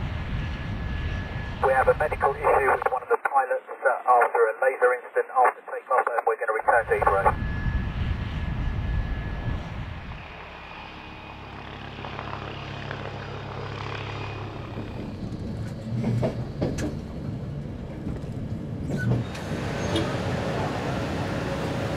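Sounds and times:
helicopter engine humming: 0.0 - 21.9
train running on rails: 8.4 - 21.9.

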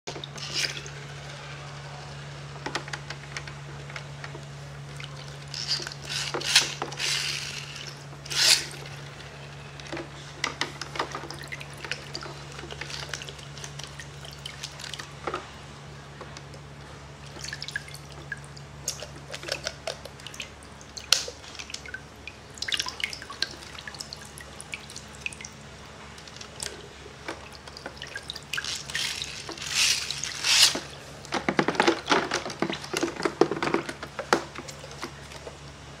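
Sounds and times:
water splashing in a tub: 4.5 - 35.6
bath toys clicking: 5.1 - 15.4, 17.3 - 25.4, 26.2 - 35.5.

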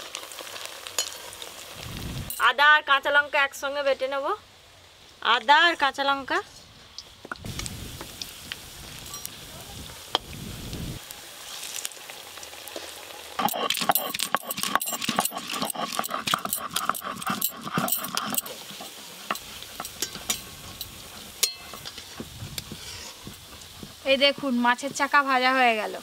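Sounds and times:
food sizzling in hot oil: 0.0 - 3.6, 6.9 - 26.0
stone roller crushing on stone slab: 13.4 - 20.4.

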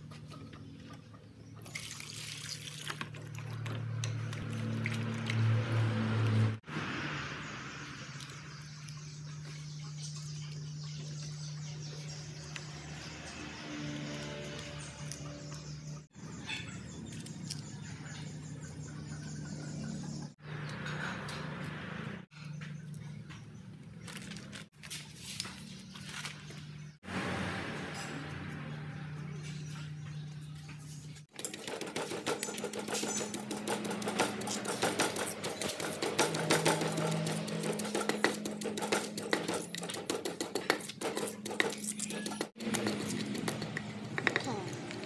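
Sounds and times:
wooden pestle pounding in stone mortar: 31.4 - 44.5.

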